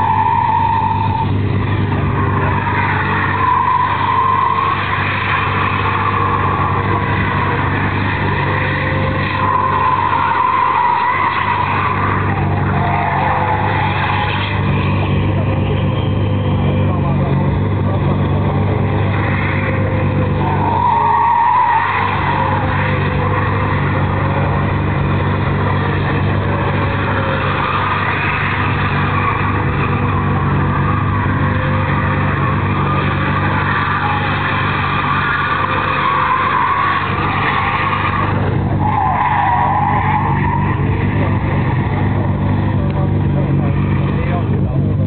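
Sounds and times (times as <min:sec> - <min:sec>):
diesel engine at high revs: 0:00.0 - 0:45.0
tyres squealing: 0:00.0 - 0:45.0.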